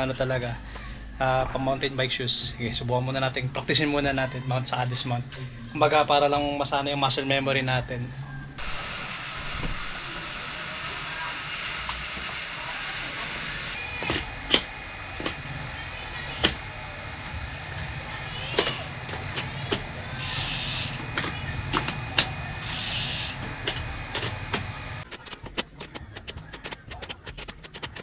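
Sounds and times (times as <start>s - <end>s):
steady hum: 8.2s - 28.0s.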